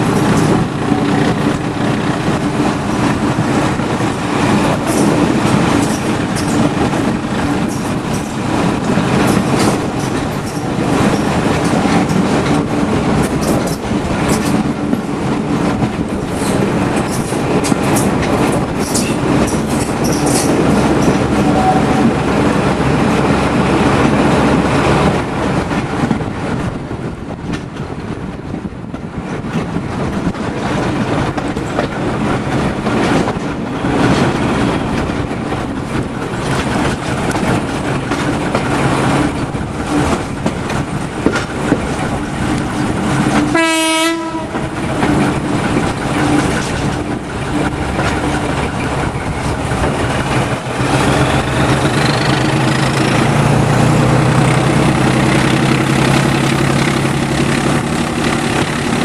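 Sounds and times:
diesel locomotive engine: 0:00.0 - 0:59.0
wheels clattering on rail joints: 0:00.0 - 0:59.0
train horn blast: 0:21.4 - 0:22.1, 0:43.4 - 0:44.8.

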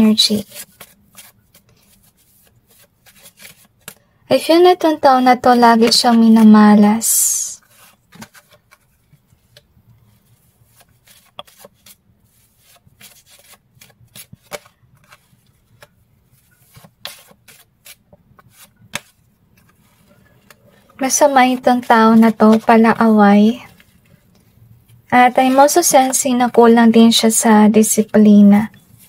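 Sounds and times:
cards being shuffled: 0:00.2 - 0:04.0, 0:07.6 - 0:26.8.

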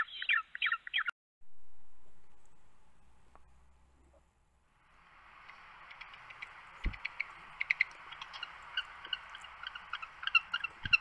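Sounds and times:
steady hiss: 0:01.5 - 0:11.0
penguins chirping: 0:05.9 - 0:11.0.

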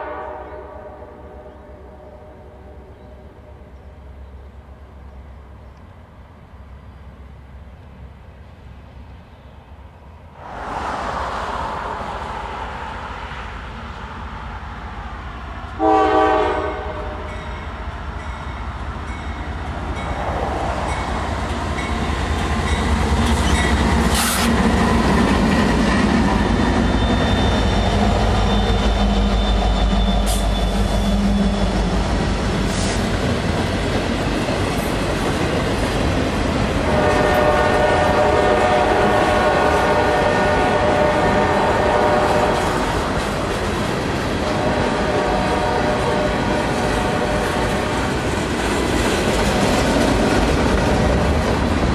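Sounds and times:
train horn blast: 0:00.0 - 0:04.0, 0:15.8 - 0:17.6, 0:36.8 - 0:42.9, 0:44.4 - 0:48.1
diesel locomotive engines: 0:00.0 - 0:51.9.

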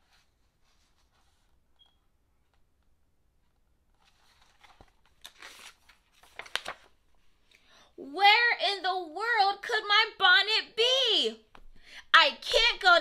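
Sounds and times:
paper rustling: 0:03.9 - 0:07.2.

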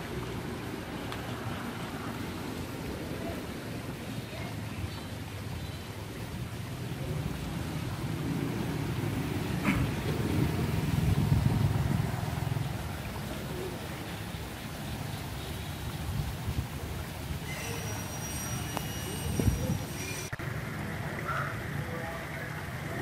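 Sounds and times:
vehicle passing rumble: 0:00.0 - 0:17.4.

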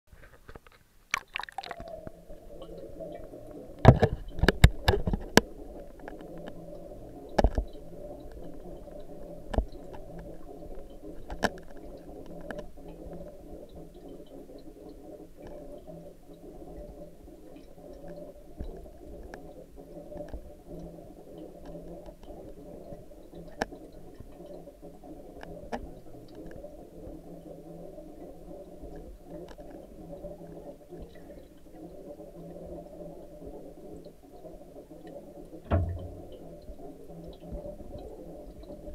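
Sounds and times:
muffled underwater rumble: 0:35.7 - 0:37.0.

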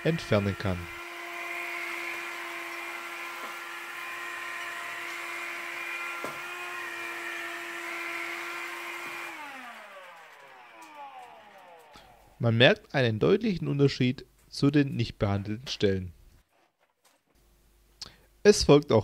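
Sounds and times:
vacuum cleaner motor whine: 0:00.0 - 0:12.4.

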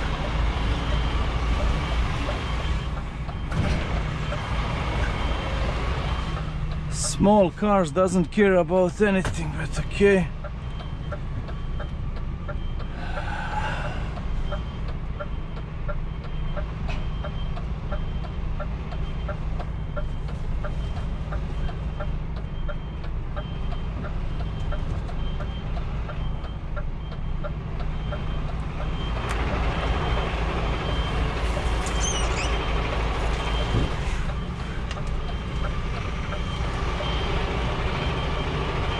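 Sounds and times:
rushing engine noise: 0:00.0 - 0:38.9
truck engine running low: 0:00.0 - 0:38.9
truck reversing alarm beeping: 0:00.0 - 0:38.9.

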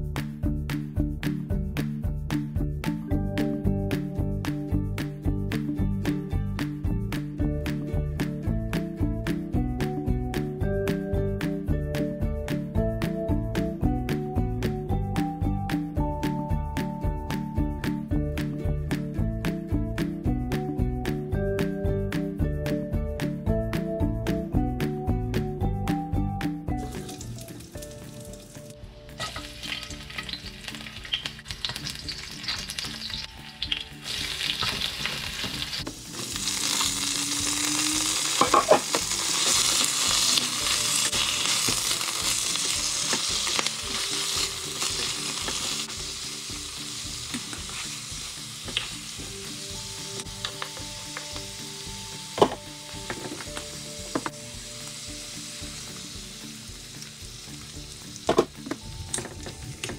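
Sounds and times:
greens sizzling in a wok: 0:26.8 - 0:59.7.

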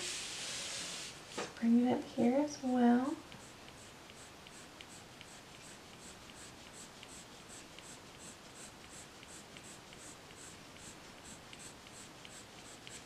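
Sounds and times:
colored pencil scratching on paper: 0:02.6 - 0:13.0.

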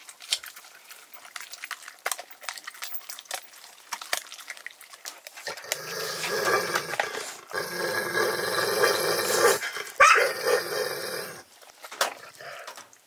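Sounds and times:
dog growling: 0:05.4 - 0:11.5.

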